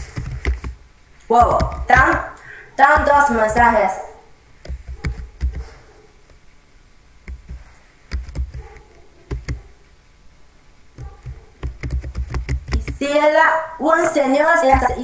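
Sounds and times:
keyboard typing: 0.0 - 3.8, 4.6 - 5.8, 7.2 - 9.6, 11.0 - 13.0.

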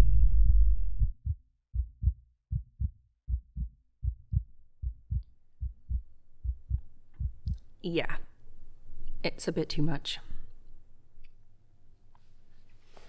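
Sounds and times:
low rumbling drone: 0.0 - 7.5
heartbeat thumps: 0.0 - 7.6.

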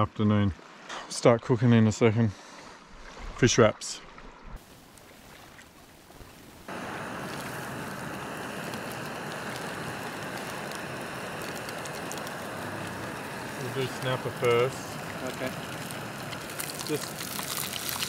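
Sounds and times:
fish sizzling in hot oil: 6.3 - 18.0.

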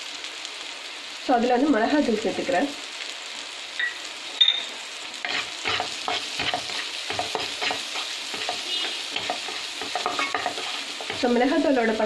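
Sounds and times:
food sizzling in pan: 0.0 - 12.0
spatula tapping pan: 5.3 - 11.4
wooden spatula scraping pan: 5.3 - 11.7.

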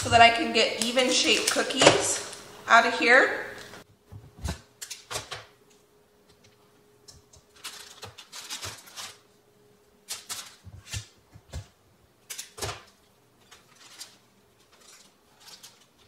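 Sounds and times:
gritty sugar rustles: 7.5 - 9.4, 13.4 - 16.0.

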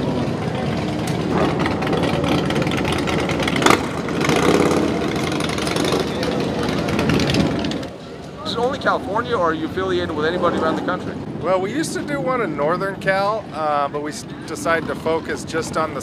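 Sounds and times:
motorcycle engine idling: 0.0 - 8.0.

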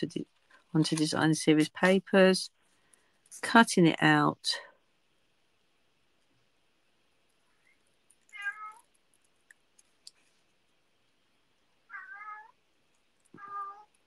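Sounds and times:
cat meowing: 8.3 - 8.8, 11.9 - 12.6, 13.3 - 14.0.

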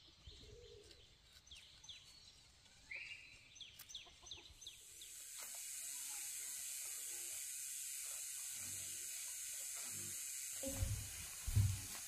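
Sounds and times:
high-pitched hiss: 2.8 - 12.0.

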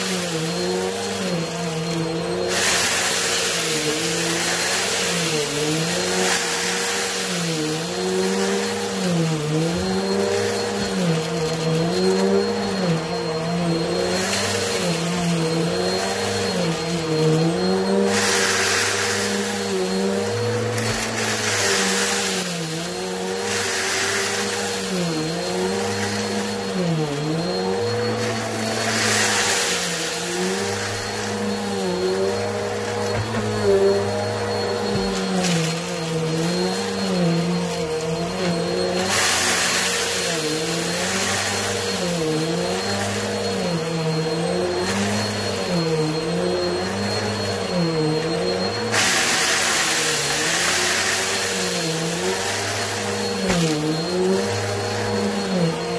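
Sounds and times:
vacuum cleaner running on carpet: 0.0 - 55.9
vacuum sucking up debris: 0.0 - 55.9.

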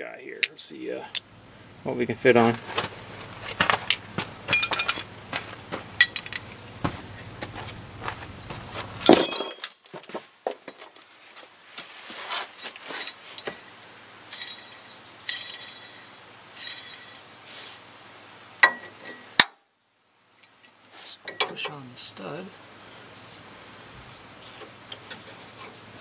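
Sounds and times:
steel tools clinking and clattering: 3.8 - 6.6, 9.0 - 9.8, 12.6 - 17.3, 24.4 - 25.7.

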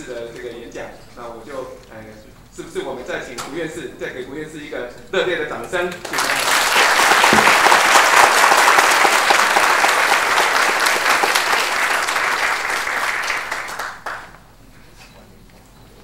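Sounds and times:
audience applauding: 6.0 - 14.6.

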